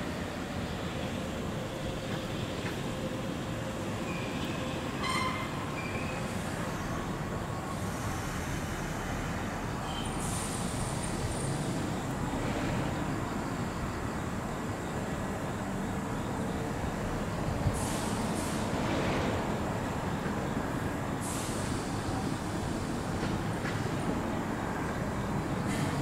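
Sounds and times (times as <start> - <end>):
train wheels rumbling on rail: 0.0 - 26.0
high wheel squeals: 3.8 - 11.9.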